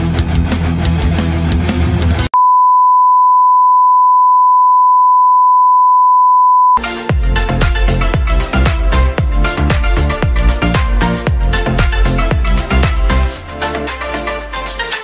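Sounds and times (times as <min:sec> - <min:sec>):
high pure beep tone: 0:02.4 - 0:06.8
music with a beat: 0:06.8 - 0:15.0.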